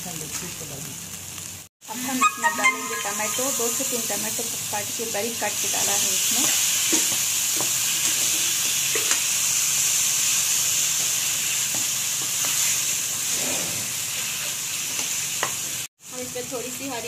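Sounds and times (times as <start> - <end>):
tomatoes sizzling in hot oil: 0.0 - 17.0
spatula scraping a pan: 12.4 - 13.9.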